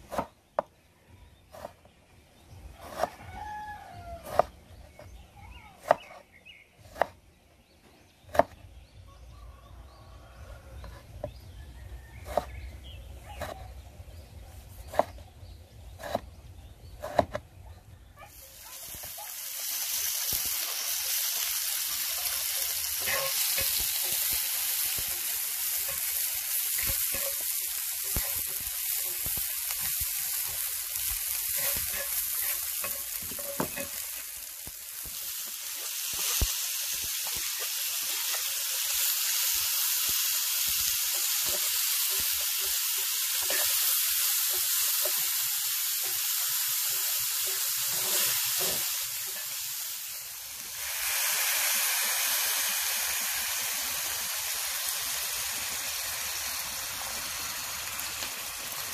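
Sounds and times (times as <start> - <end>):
knife cutting on wooden board: 1.5 - 1.8, 2.8 - 3.2, 4.2 - 4.6, 6.8 - 7.2, 12.2 - 12.5, 13.3 - 13.8, 14.8 - 15.2, 16.0 - 16.3, 17.0 - 17.5
onion and garlic sizzling in oil: 1.5 - 58.9
spatula scraping and knocking pan: 12.2 - 12.6, 13.3 - 13.8, 20.4 - 39.1, 40.7 - 49.6.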